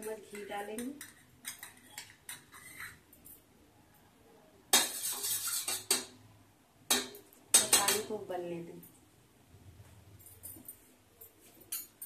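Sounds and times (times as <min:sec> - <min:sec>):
spoon scraping metal pan: 0:00.0 - 0:03.1, 0:04.7 - 0:06.2
metal spoon clinking bowl: 0:00.0 - 0:03.4, 0:11.2 - 0:12.0.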